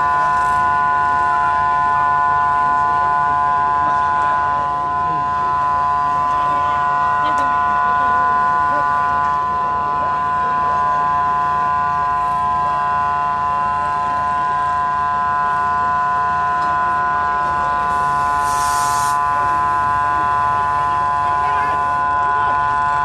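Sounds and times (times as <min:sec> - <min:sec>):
mechanical whine: 0:00.0 - 0:23.0
burst of hiss: 0:18.3 - 0:19.2.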